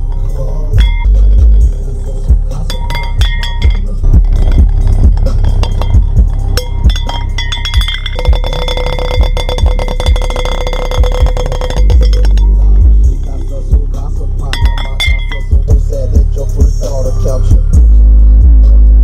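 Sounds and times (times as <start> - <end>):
glass plate rattling on speaker: 0.0 - 13.8, 14.4 - 15.8
bass-heavy rap on a speaker: 0.0 - 19.0.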